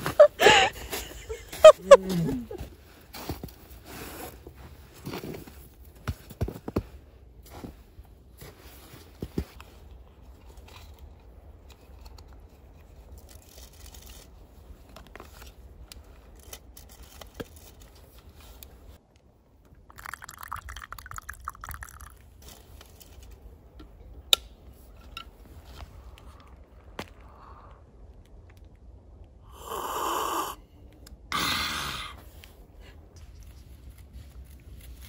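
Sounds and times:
hot drink pouring into plastic cup: 19.8s - 22.3s.

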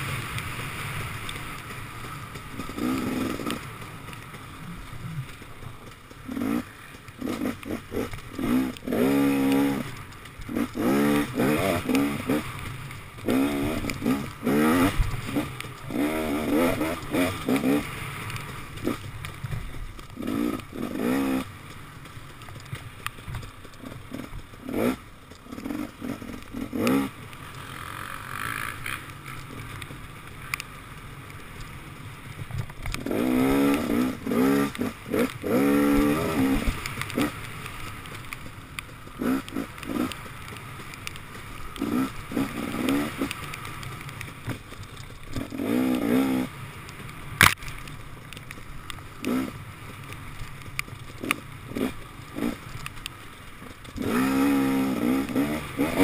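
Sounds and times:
two-stroke engine revving: 0.0s - 4.9s, 6.1s - 19.1s, 20.1s - 21.7s, 23.7s - 29.1s, 32.9s - 38.1s, 39.1s - 44.6s, 45.3s - 46.6s, 49.2s - 49.8s, 51.1s - 52.8s, 53.9s - 56.0s.

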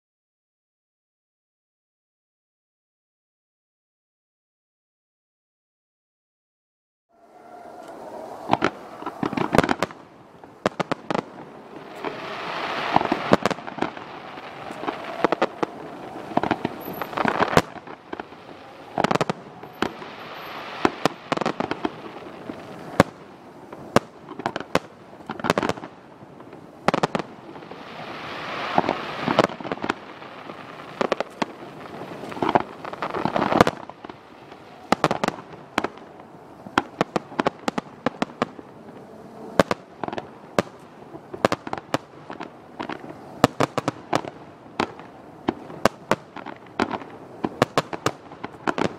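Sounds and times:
dense firework crackling: 7.2s - 48.9s.

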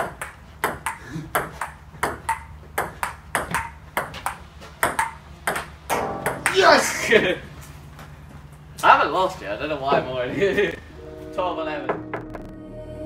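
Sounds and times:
table tennis ball clicking: 0.0s - 6.6s.

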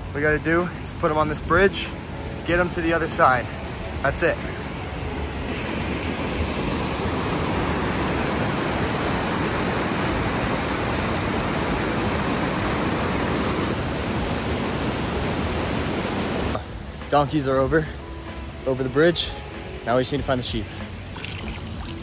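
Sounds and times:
river rushing over rocks: 0.0s - 17.0s.

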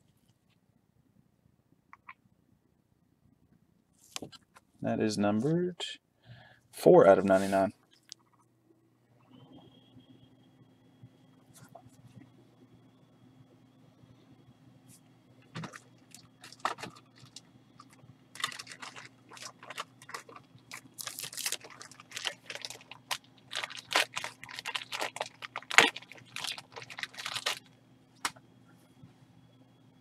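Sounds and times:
foil wrapper and cards crinkling: 15.6s - 28.4s.

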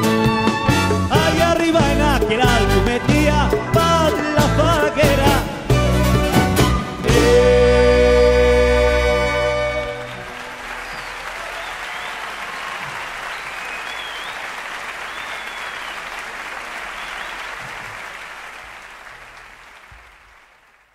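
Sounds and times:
audience applauding: 8.6s - 20.9s
short high whistles: 10.8s - 12.3s, 13.2s - 16.2s.

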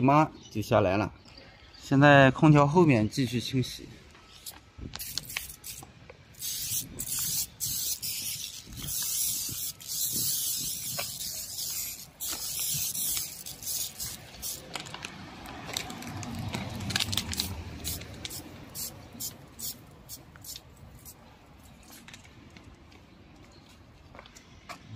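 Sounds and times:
spray bottle hissing: 4.4s - 14.7s, 17.4s - 21.2s.

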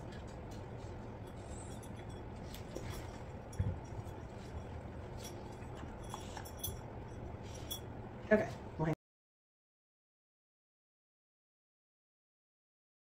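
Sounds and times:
low background hum: 0.0s - 9.0s.

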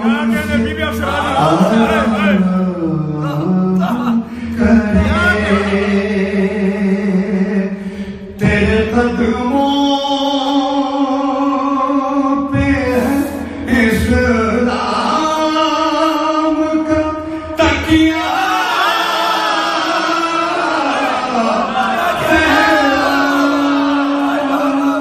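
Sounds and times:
man singing devotional song: 0.0s - 18.8s, 22.2s - 25.0s.

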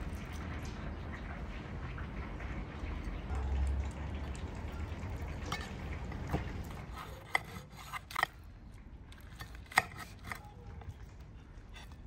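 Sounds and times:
knife crunching through fried crust: 6.7s - 8.4s, 9.2s - 10.8s.

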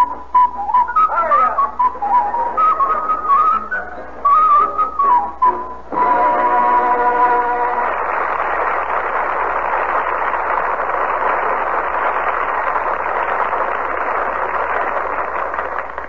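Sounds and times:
audience applause: 6.0s - 16.0s.

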